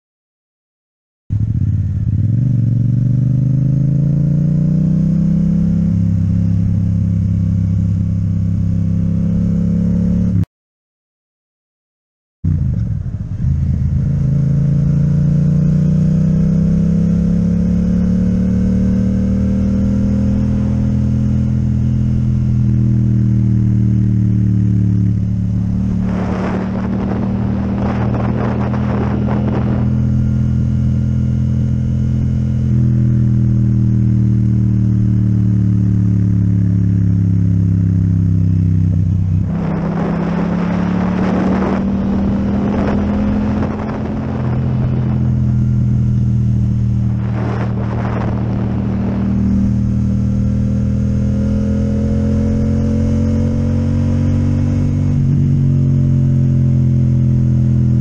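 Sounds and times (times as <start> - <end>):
motorcycle engine cruising: 1.3 - 10.5, 12.5 - 58.0
rushing noise: 25.0 - 30.0, 39.0 - 45.4, 46.5 - 50.0.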